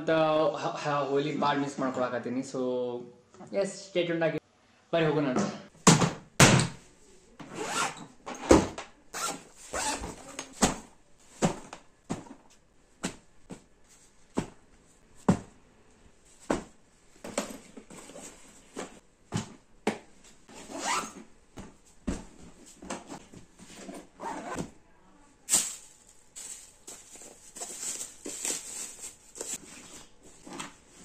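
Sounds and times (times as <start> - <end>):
clothes rustling: 6.9 - 24.7, 25.5 - 31.0.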